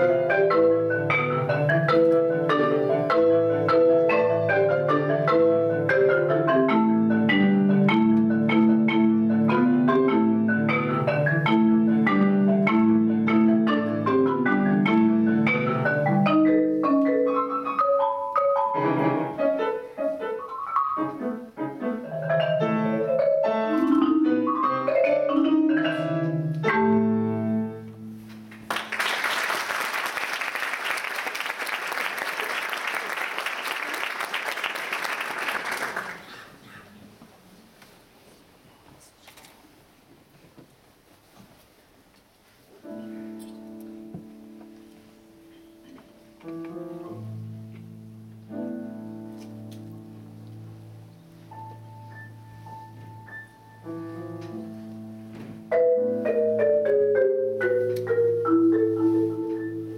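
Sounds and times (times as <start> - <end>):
marimba played with mallets: 0.0 - 21.2, 22.0 - 28.1, 51.5 - 54.8, 55.6 - 59.9
piano: 0.0 - 36.3, 42.7 - 59.9
audience applause: 28.5 - 36.5.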